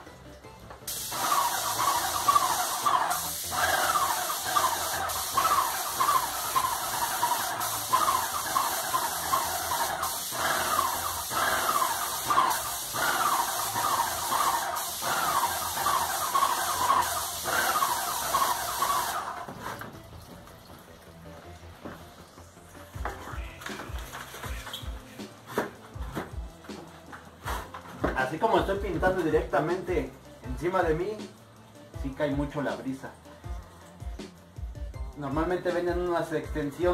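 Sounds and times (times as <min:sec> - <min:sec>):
paint sprayer hissing: 0:00.9 - 0:20.0.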